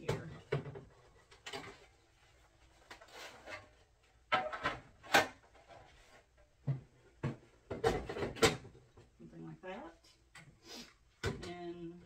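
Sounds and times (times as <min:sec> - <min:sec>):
objects rubbing and shuffling: 0:00.4 - 0:06.6.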